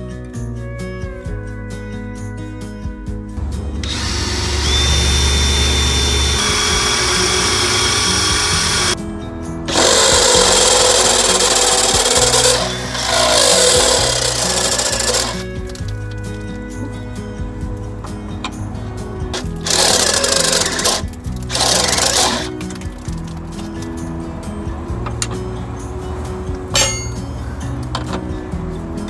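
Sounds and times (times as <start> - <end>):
background music: 0.0 - 29.0
drill boring into steel: 3.8 - 9.0, 9.7 - 15.5, 19.4 - 22.6.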